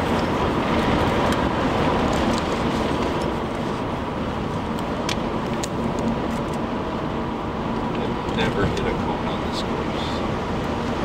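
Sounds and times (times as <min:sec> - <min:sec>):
car cabin road noise: 0:00.0 - 0:11.0.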